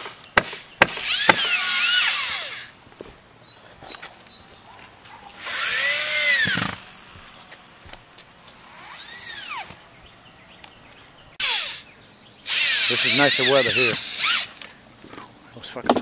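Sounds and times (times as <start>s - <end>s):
circular saw whining: 1.0s - 2.8s, 8.6s - 9.8s, 11.4s - 14.8s.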